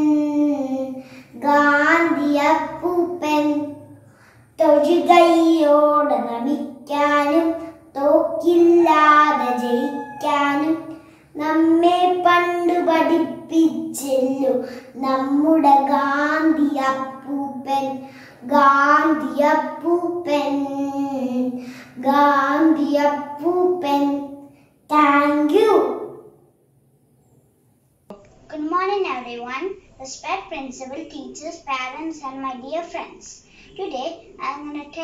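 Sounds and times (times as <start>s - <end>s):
girl singing solo: 8.5s - 10.9s.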